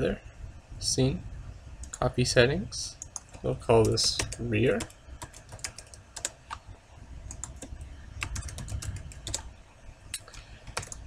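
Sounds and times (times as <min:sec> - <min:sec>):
keyboard typing: 0:03.0 - 0:06.6, 0:07.3 - 0:09.5, 0:10.2 - 0:11.0.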